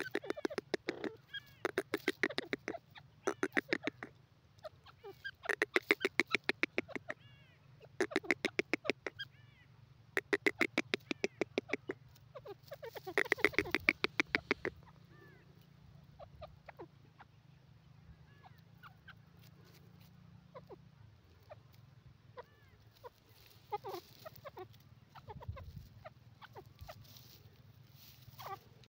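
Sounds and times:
bird clucking: 0.0s - 9.6s, 10.2s - 28.9s.

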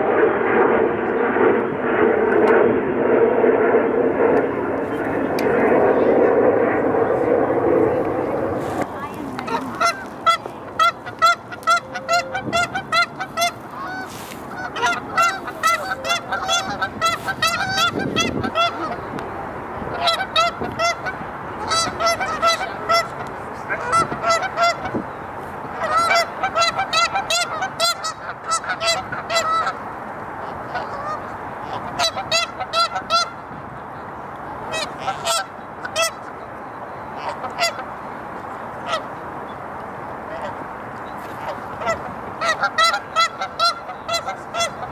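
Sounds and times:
geese honking: 9.4s - 19.1s, 19.9s - 25.0s, 25.7s - 29.8s, 30.4s - 33.4s, 34.7s - 36.2s, 37.2s - 37.9s, 38.8s - 39.1s, 41.4s - 44.9s.

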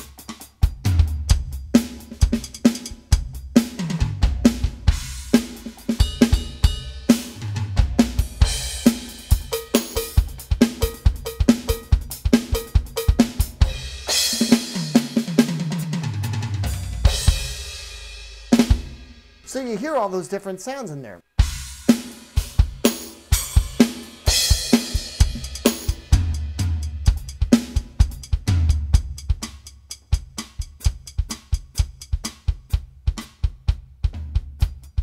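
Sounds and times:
electronic drum kit groove: 0.0s - 35.0s
tom fills: 19.4s - 21.2s.

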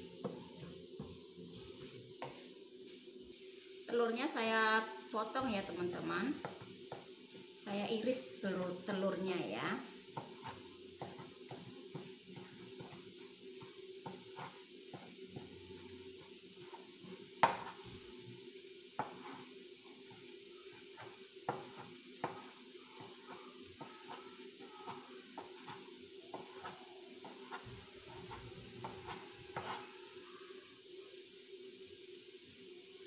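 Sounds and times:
knife tapping on cutting board: 17.4s - 17.7s.

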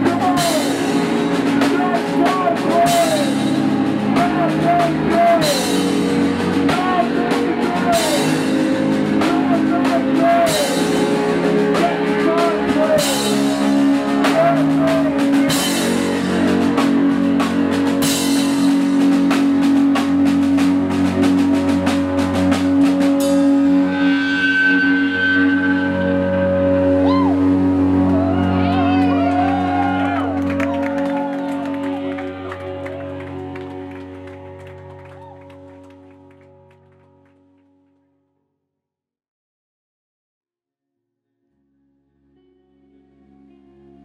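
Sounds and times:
drum kit with cymbal crashes: 0.0s - 25.9s
electric guitar: 0.0s - 37.7s, 42.1s - 44.0s
bass guitar: 0.0s - 37.9s, 41.5s - 44.0s.

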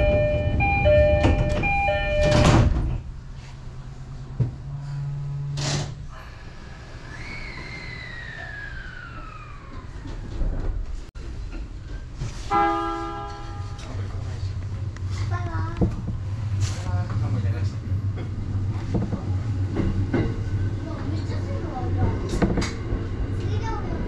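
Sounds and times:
two-note door chime: 0.0s - 2.6s
train doors sliding shut: 0.0s - 3.1s, 4.4s - 12.6s, 22.0s - 23.2s.

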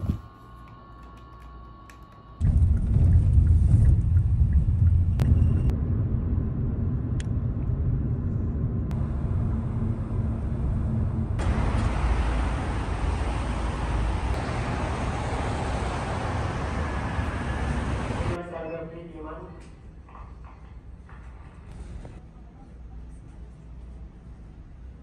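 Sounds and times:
road rumble inside moving car: 2.4s - 18.4s
traffic passing on busy road: 8.9s - 18.4s.

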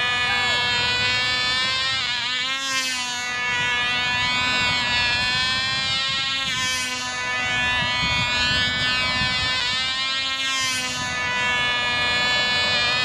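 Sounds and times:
model plane engine buzzing: 0.0s - 13.0s.

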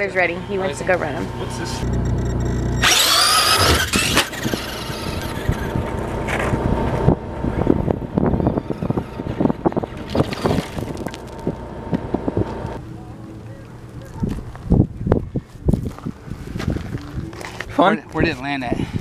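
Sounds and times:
toy truck motor whine: 1.4s - 12.8s
tyres crackling on gravel: 1.5s - 18.5s.

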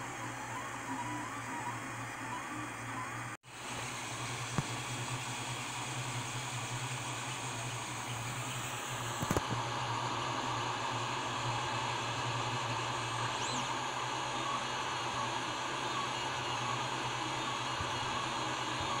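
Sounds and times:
printer fan whir: 0.0s - 19.0s.

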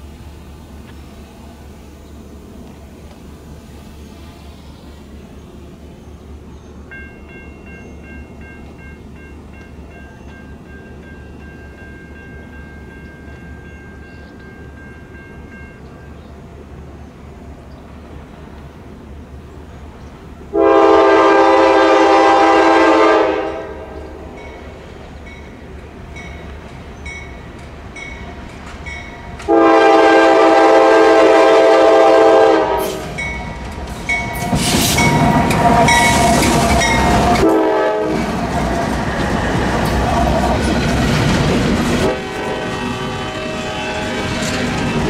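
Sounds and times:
locomotive air horn blasts: 20.5s - 24.0s, 29.5s - 33.2s, 35.0s - 38.5s, 42.0s - 44.4s.

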